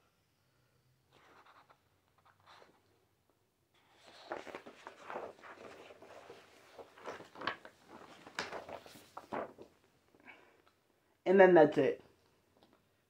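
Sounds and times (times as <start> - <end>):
paper rustling: 1.2 - 2.8, 3.8 - 9.9
page flaps: 3.8 - 9.8.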